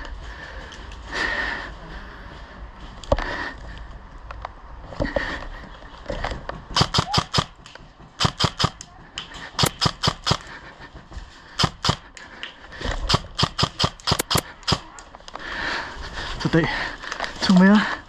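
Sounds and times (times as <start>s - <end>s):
airsoft rifle firing: 6.7s - 7.6s, 8.2s - 8.8s, 9.6s - 10.5s, 11.6s - 12.1s, 13.0s - 14.9s.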